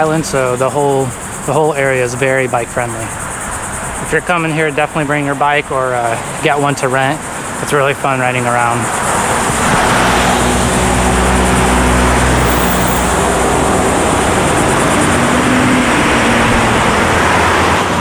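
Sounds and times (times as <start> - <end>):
road traffic hum: 0.0 - 18.0
wind on microphone: 8.8 - 18.0.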